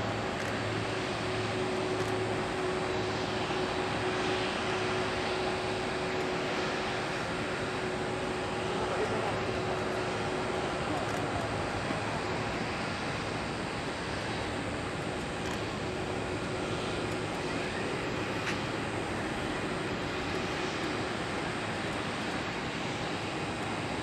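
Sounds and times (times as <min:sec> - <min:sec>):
jet engines rushing: 0:00.0 - 0:24.0.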